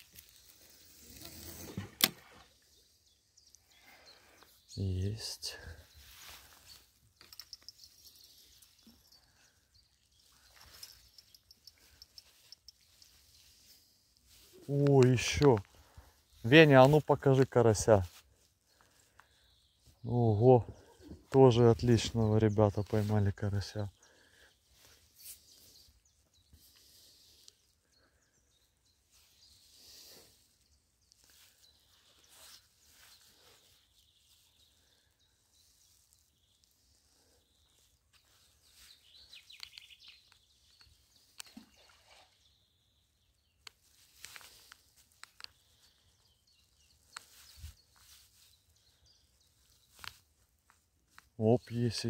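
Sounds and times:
small clicks: 43.6s - 45.6s.

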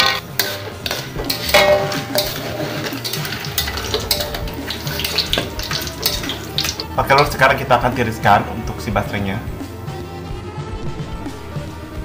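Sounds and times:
metal skimmer clinking on wok: 0.0s - 7.5s
oil crackling: 0.0s - 9.7s.

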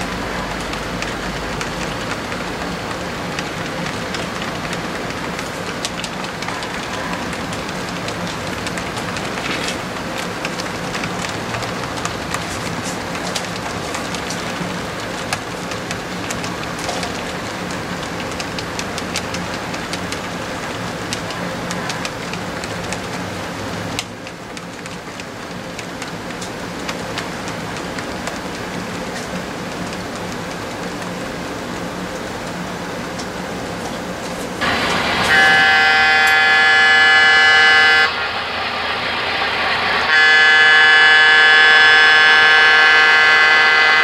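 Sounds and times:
clicks over rail joints: 0.0s - 35.4s
low hum: 34.6s - 44.0s.

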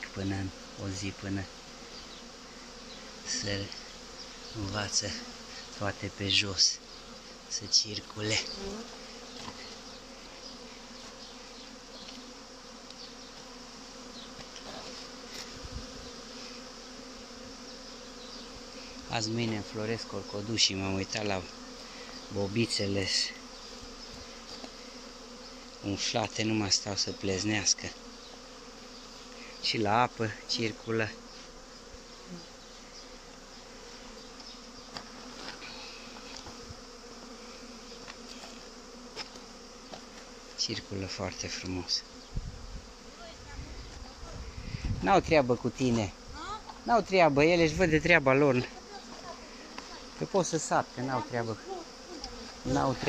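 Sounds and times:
bees buzzing: 0.0s - 53.0s
single bee buzzing close by: 0.0s - 53.0s.

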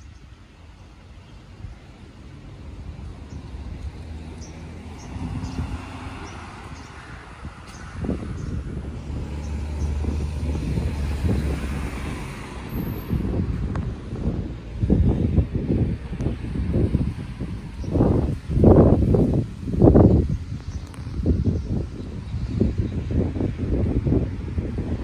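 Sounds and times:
wind buffeting microphone: 0.0s - 25.0s
vehicle passing: 2.0s - 20.5s.

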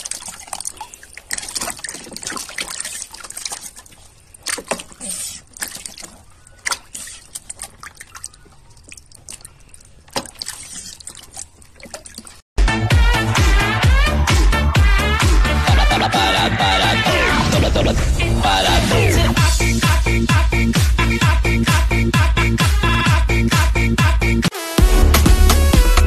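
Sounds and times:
water dripping: 0.0s - 12.4s
water splashing in plastic tub: 0.0s - 12.5s.

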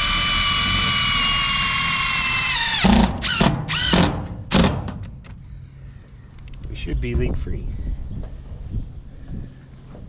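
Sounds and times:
impact driver whining: 0.0s - 5.1s.

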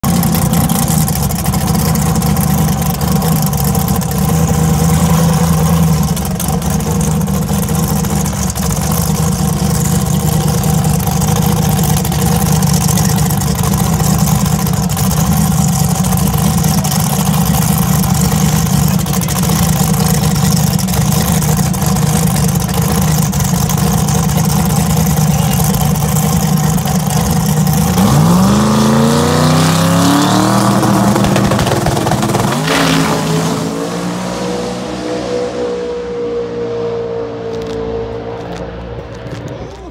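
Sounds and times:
car engine idling loudly: 0.0s - 34.4s
engine revving: 16.1s - 39.9s.

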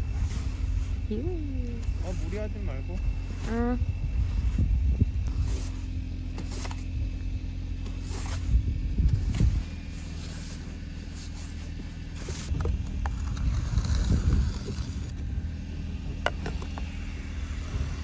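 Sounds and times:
brush sweeping snow off glass: 0.0s - 1.0s, 1.9s - 2.6s, 5.3s - 6.9s, 7.8s - 12.5s
steady low rumble: 0.0s - 18.0s.

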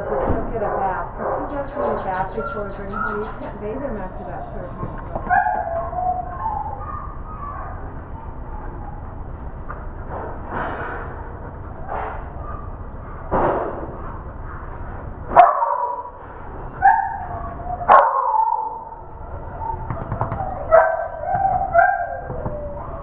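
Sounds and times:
dog barking and yipping: 1.3s - 3.4s, 5.2s - 9.0s, 15.3s - 16.1s, 16.8s - 23.0s.

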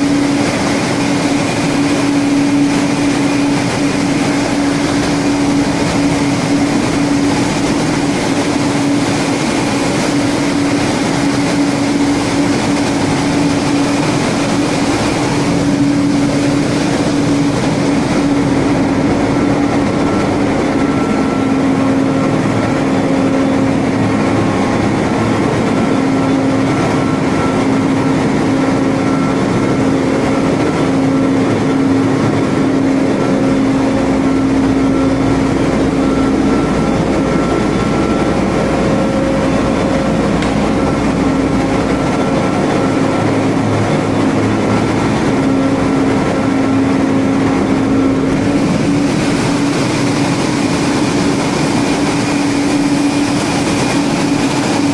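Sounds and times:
engine room machinery roaring: 0.0s - 54.9s
high machinery whine: 0.0s - 54.9s.

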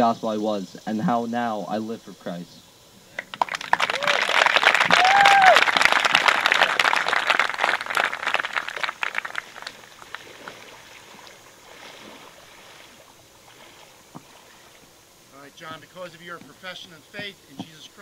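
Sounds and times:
crowd applauding: 3.2s - 10.2s.

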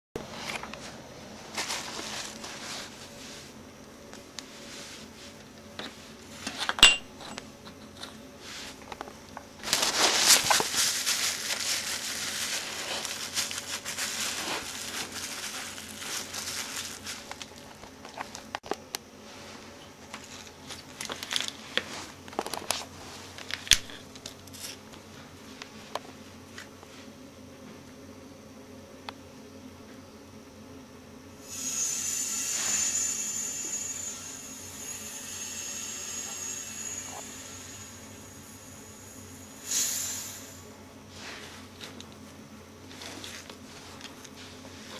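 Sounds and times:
pipe parts being handled: 5.3s - 18.8s, 20.0s - 24.8s, 42.9s - 44.9s.

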